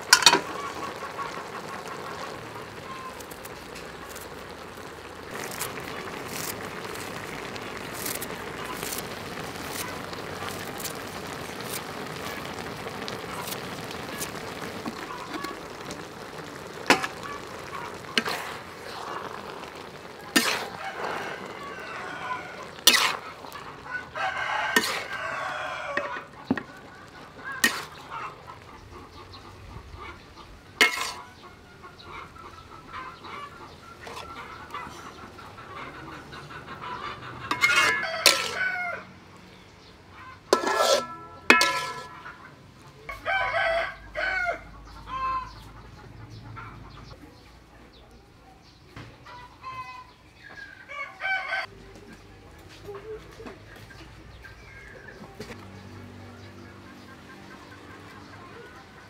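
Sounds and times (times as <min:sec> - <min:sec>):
metal utensil scraping a wok: 0:00.0 - 0:29.2, 0:30.8 - 0:31.4, 0:33.0 - 0:35.6, 0:36.2 - 0:38.9, 0:40.3 - 0:42.5
food simmering: 0:00.0 - 0:44.7
chickens clucking: 0:00.0 - 0:59.0
rooster crowing: 0:20.4 - 0:28.4, 0:36.9 - 0:39.2, 0:43.1 - 0:45.6, 0:50.8 - 0:51.7.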